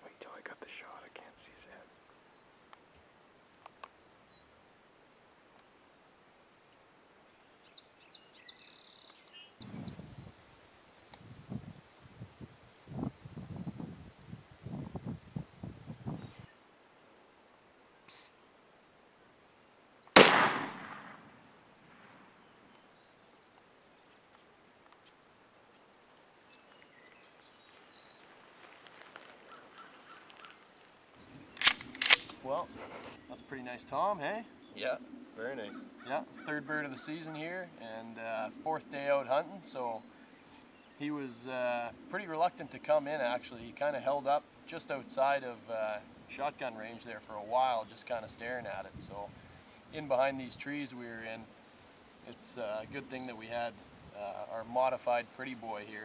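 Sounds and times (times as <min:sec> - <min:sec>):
small birds chirping: 0:00.0 - 0:20.4, 0:22.0 - 0:56.0
faint clicks: 0:02.7 - 0:04.0, 0:05.5 - 0:05.7, 0:31.6 - 0:32.7
shotgun blast: 0:20.2 - 0:22.3.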